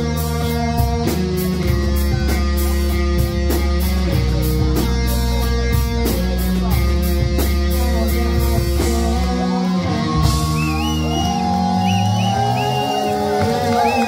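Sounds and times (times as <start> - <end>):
bending lead guitar notes: 0.0 - 14.0
live rock band playing: 0.0 - 14.0.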